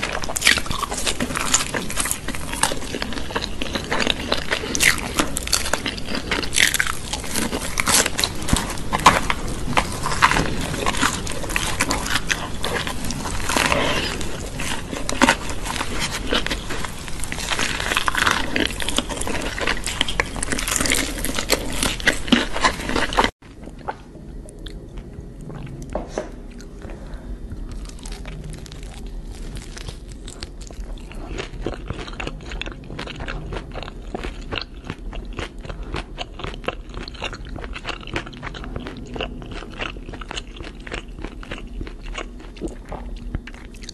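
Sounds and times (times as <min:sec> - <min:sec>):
crunching bites and chewing: 0:00.0 - 0:24.0, 0:27.6 - 0:43.9.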